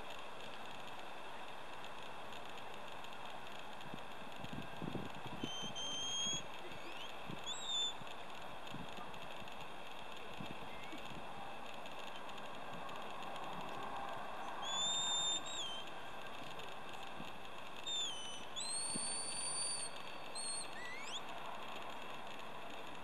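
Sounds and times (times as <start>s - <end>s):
shepherd's whistle: 5.4s - 8.0s, 14.6s - 15.9s, 17.8s - 21.2s.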